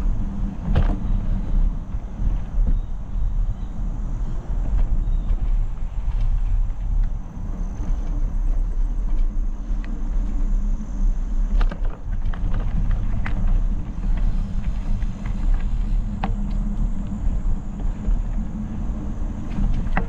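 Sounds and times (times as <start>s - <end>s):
bike clicks and rattles: 0.0s - 20.0s
tyres rolling on dirt: 0.0s - 20.0s
wind on microphone: 0.0s - 20.0s.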